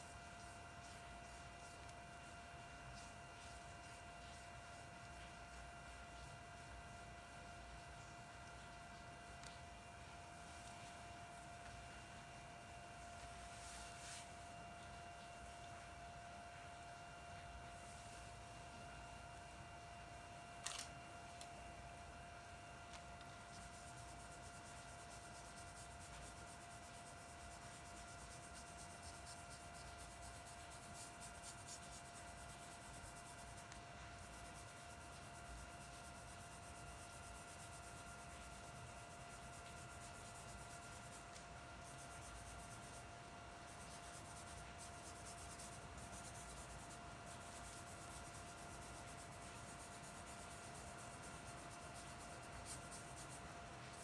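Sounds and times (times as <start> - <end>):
high electrical hum: 0.0 - 54.0
brush rubbing on paper: 0.4 - 6.3, 13.2 - 14.4, 23.2 - 54.0.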